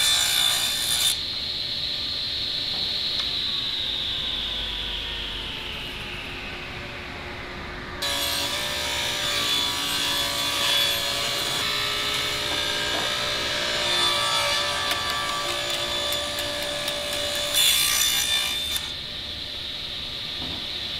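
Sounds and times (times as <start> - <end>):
table saw ripping wood: 8.0 - 18.9.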